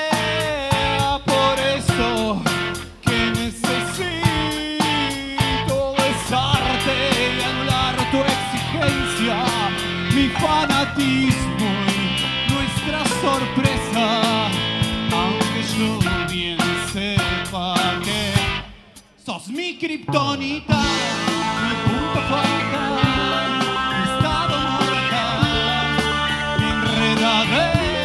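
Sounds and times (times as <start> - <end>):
rock band playing live: 0.0 - 19.2, 20.0 - 28.0
steady drum beat: 0.0 - 19.2, 20.1 - 28.0
man singing: 0.0 - 28.0.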